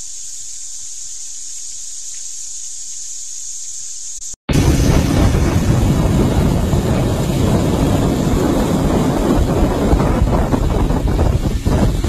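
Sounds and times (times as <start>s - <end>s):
small boat motor running: 4.5s - 12.0s
wind buffeting microphone: 4.5s - 12.0s.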